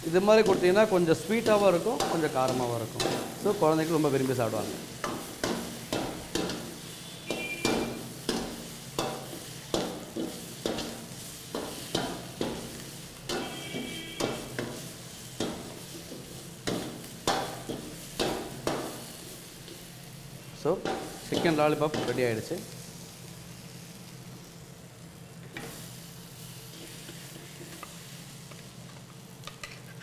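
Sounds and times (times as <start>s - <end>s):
food sizzling: 0.0s - 30.0s
spatula scraping a wok: 5.1s - 19.3s.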